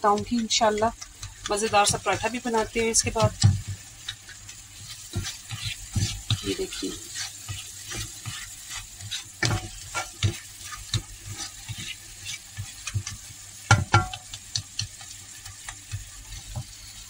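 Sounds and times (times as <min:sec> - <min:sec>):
food sizzling in ghee: 0:00.0 - 0:17.0
spatula scraping a frying pan: 0:00.0 - 0:17.0.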